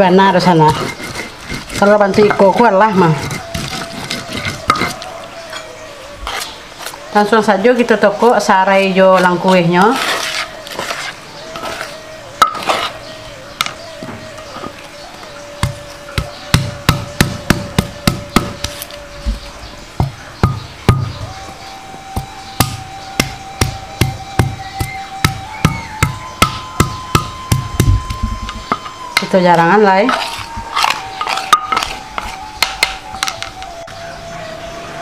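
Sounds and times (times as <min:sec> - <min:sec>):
stone pestle striking mortar: 0:00.7 - 0:05.0, 0:15.6 - 0:18.7, 0:20.0 - 0:21.2, 0:22.2 - 0:28.1, 0:30.1 - 0:33.5.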